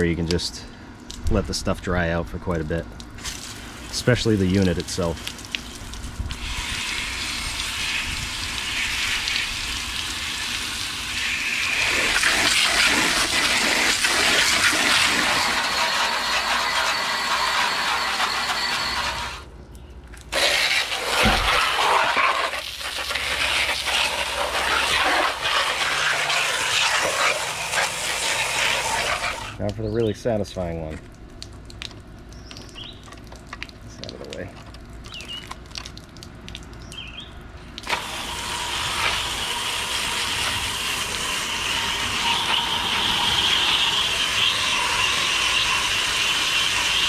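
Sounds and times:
hose spraying water: 3.2s - 19.4s, 20.2s - 29.6s, 37.8s - 47.0s.

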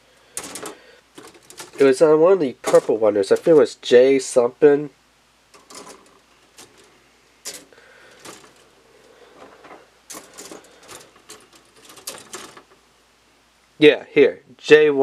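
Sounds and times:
plastic runners clattering: 0.4s - 3.6s, 5.6s - 8.7s, 9.3s - 12.8s.

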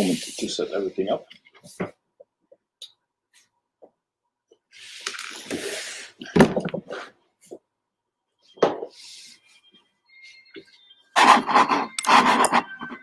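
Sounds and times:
drink can hiss: 0.0s - 0.6s.

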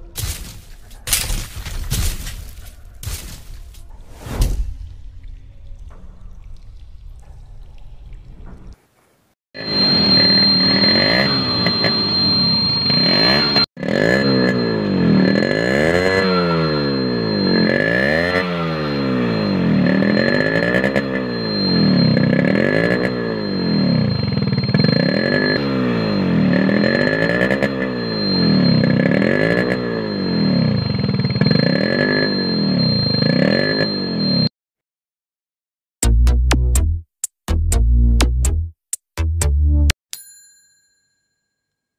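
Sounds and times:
two-stroke motorcycle engine revving: 9.6s - 34.4s.

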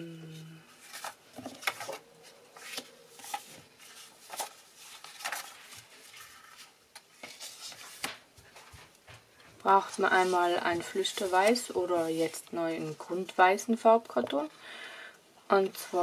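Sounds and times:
paper sheets rustling and sliding: 0.8s - 8.9s, 9.7s - 13.2s.

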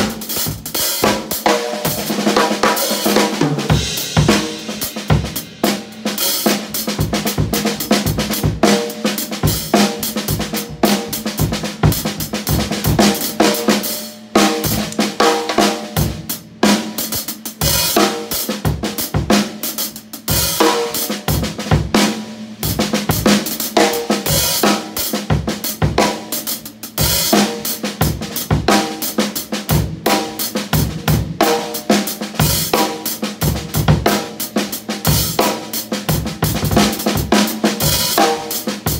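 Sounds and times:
drum kit groove: 0.0s - 38.9s.

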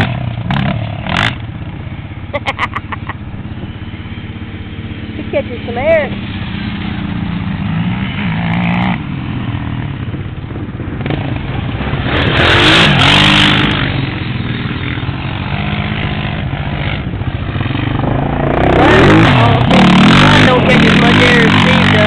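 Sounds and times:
quad engines revving: 0.0s - 22.0s.

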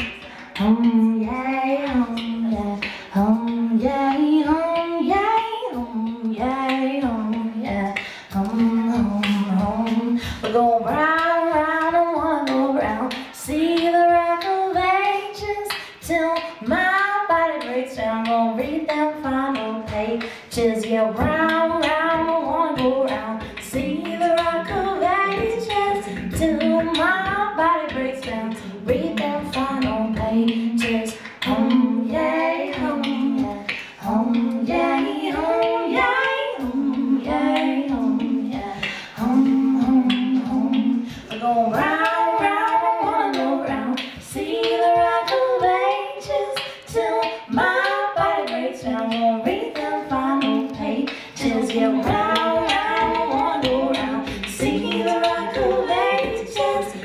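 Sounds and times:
beatboxed rhythm: 0.0s - 57.0s
woman singing: 0.0s - 57.0s.

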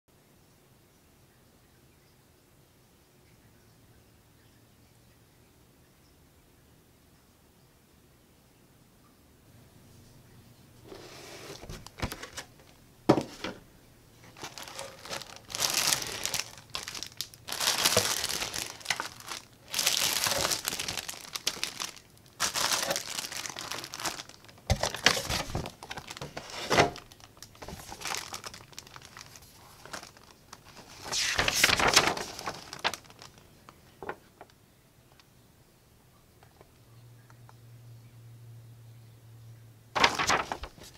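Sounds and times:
plastic bags crinkling: 10.9s - 13.6s, 14.2s - 34.5s, 40.0s - 40.9s.

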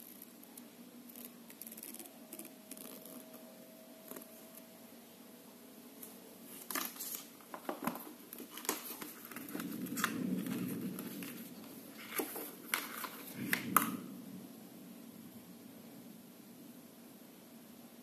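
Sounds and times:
cardboard rustling: 6.5s - 13.8s.

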